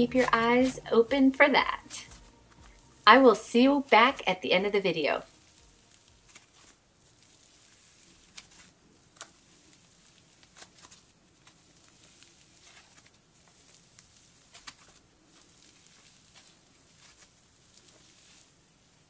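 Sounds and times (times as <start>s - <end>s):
slime crackling as it's stretched: 0.0s - 19.0s.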